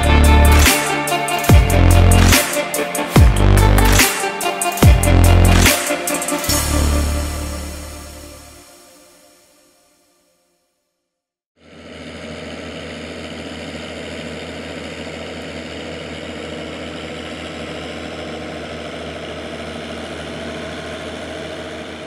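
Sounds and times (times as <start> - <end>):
tractor diesel engine idling: 0.0 - 5.8, 11.6 - 22.0.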